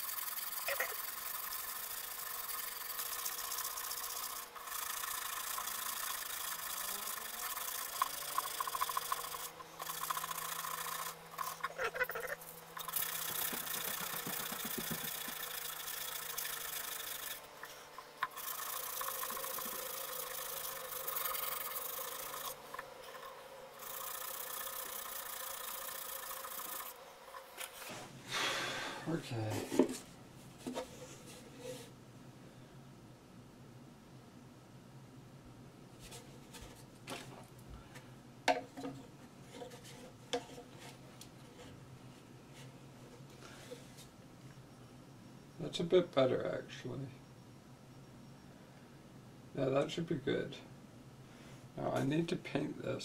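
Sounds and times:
sandpaper rubbing on wood: 0:12.9 - 0:17.4, 0:18.4 - 0:22.6.

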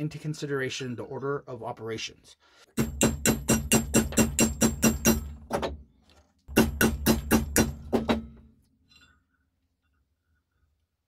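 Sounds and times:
hammer striking metal: 0:02.8 - 0:05.4, 0:06.5 - 0:08.4.

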